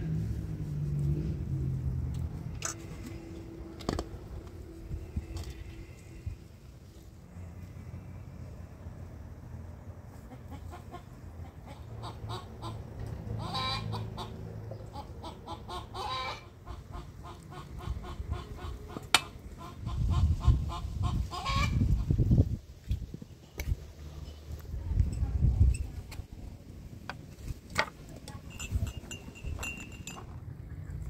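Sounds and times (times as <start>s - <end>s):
poultry calling: 13.4s - 21.8s.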